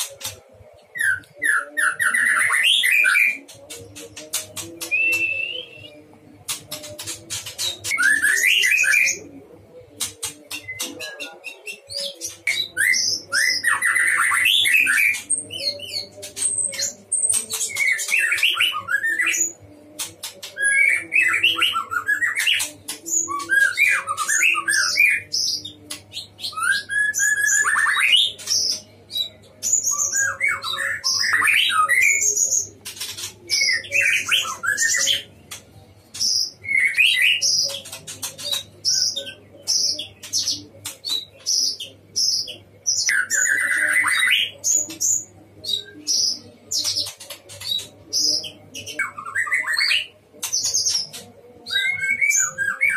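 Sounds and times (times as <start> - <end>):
songbird whistles and trills: 4.8 - 9.2.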